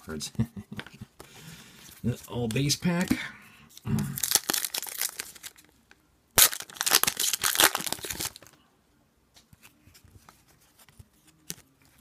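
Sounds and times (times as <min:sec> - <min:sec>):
wrapper torn and crinkled: 0:04.2 - 0:05.8, 0:06.4 - 0:08.5.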